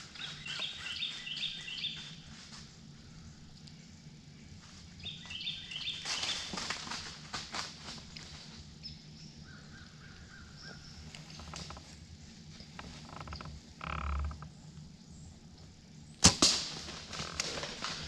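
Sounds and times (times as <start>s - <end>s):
loud sharp crack: 16.2s - 18.0s.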